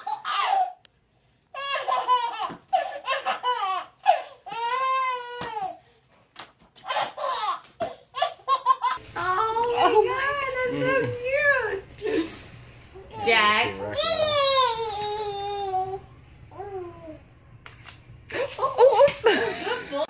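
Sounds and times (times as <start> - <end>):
baby laughing: 0.0 - 0.8, 1.6 - 5.7, 6.8 - 9.0.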